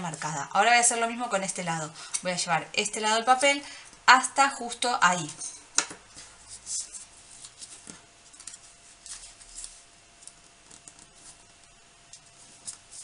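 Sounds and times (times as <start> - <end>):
paper rustling and crinkling: 6.2 - 11.5.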